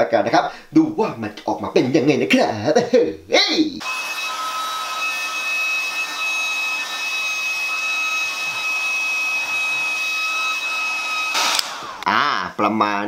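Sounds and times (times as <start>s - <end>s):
hot-air blower rushing: 3.8s - 12.1s
high steady whine: 3.8s - 12.3s.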